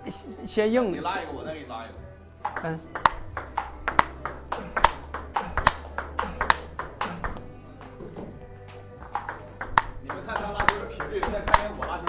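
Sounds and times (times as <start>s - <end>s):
table tennis ball hits: 2.4s - 12.0s.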